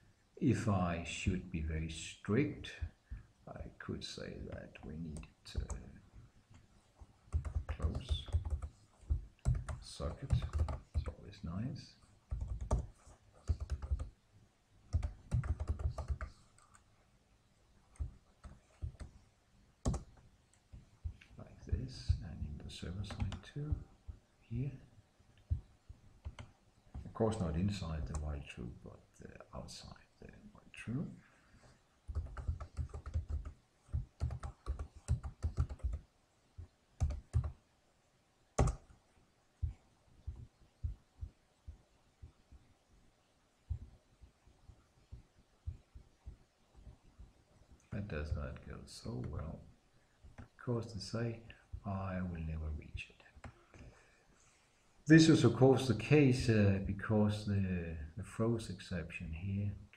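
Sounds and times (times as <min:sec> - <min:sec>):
keyboard typing: 0:07.3 - 0:11.2, 0:12.3 - 0:14.1, 0:14.9 - 0:16.8, 0:17.9 - 0:19.1, 0:19.8 - 0:20.2, 0:23.0 - 0:23.8, 0:25.5 - 0:27.1, 0:32.1 - 0:36.1, 0:37.0 - 0:37.6, 0:38.6 - 0:39.0.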